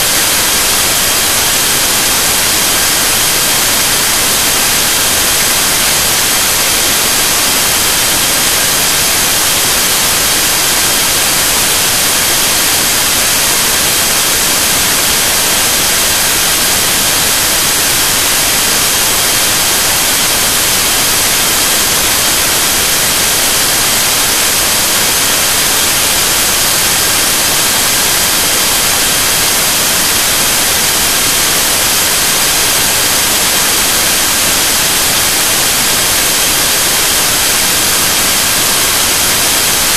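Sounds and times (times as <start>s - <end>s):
loud static hiss: 0.0s - 39.9s.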